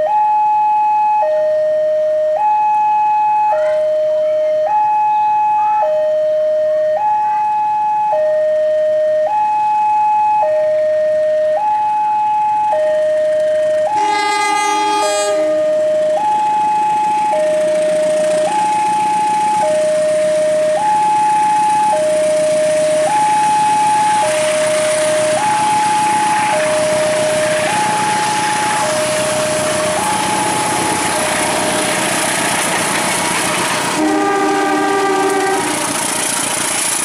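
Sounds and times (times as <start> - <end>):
two-tone crossing alarm: 0.0 - 37.0
train rumble: 13.2 - 37.0
train horn blast: 13.9 - 15.9, 33.8 - 36.1.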